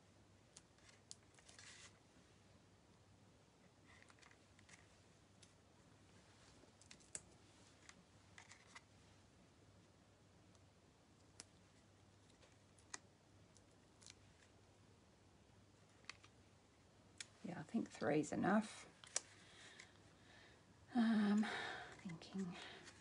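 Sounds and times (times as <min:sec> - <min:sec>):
faint low hum: 0:00.0 - 0:23.0
soft paper rustles: 0:00.5 - 0:02.0, 0:03.6 - 0:05.6, 0:06.2 - 0:09.2, 0:21.8 - 0:23.0.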